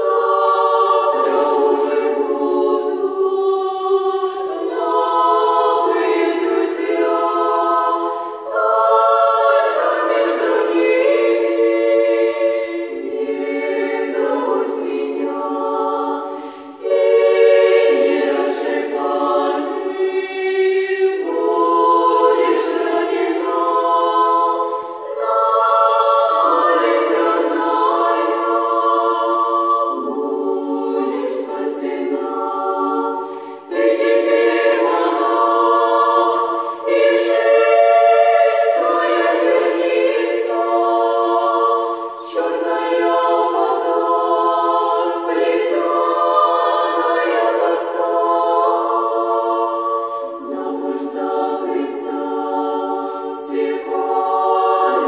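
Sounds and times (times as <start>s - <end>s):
women's choir singing: 0.0s - 55.0s
singers breathing: 8.0s - 8.5s, 16.2s - 16.9s, 24.6s - 25.0s, 33.2s - 33.7s, 36.5s - 36.8s.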